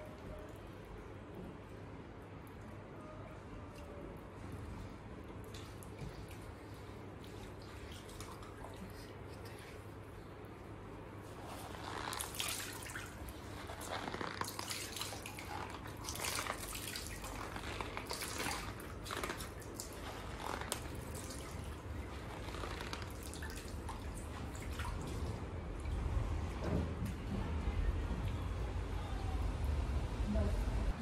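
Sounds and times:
water dripping onto ground: 11.9s - 25.9s.

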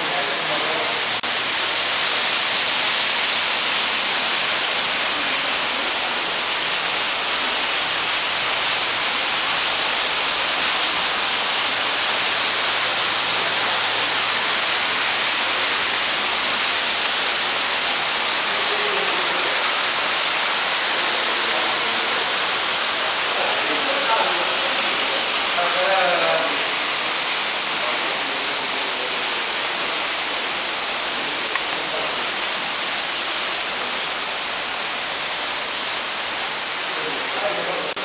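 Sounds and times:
loud high hiss: 0.0s - 38.0s.

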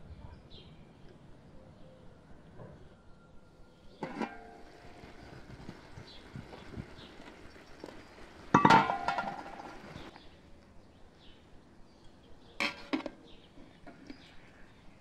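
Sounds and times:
metal cookware clanking: 4.0s - 5.2s, 8.5s - 10.0s.

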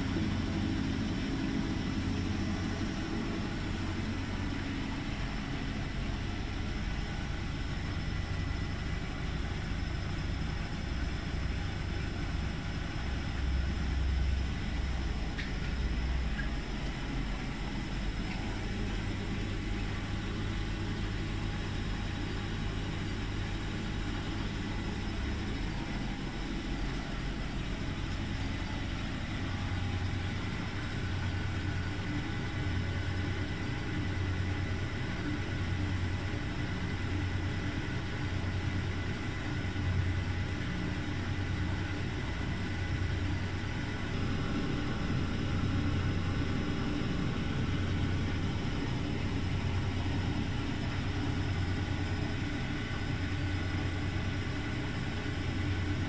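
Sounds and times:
washing machine motor hum: 0.0s - 56.0s.

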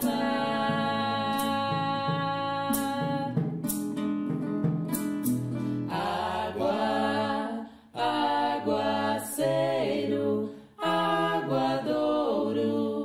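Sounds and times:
voices singing together: 0.0s - 3.4s, 5.8s - 13.0s
strummed acoustic guitar: 0.0s - 6.0s
sharp percussive taps: 1.2s - 5.5s.

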